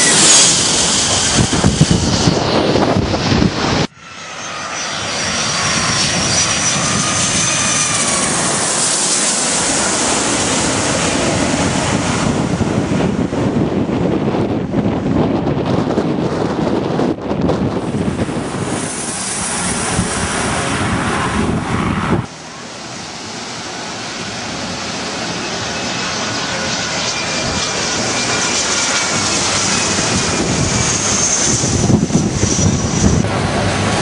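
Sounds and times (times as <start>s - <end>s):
wind buffeting microphone: 0.0s - 4.2s, 4.9s - 22.5s, 23.3s - 34.0s
distant jet engine noise: 0.0s - 34.0s
jet airliner landing overhead: 0.0s - 34.0s.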